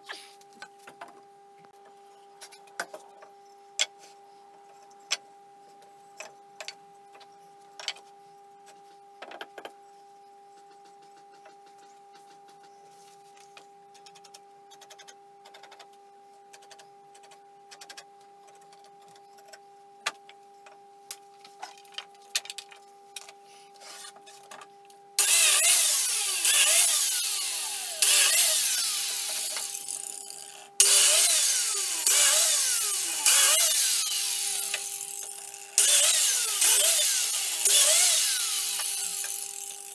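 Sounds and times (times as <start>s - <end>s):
biscuit jointer cutting wood: 25.2s - 30.2s, 30.8s - 39.9s.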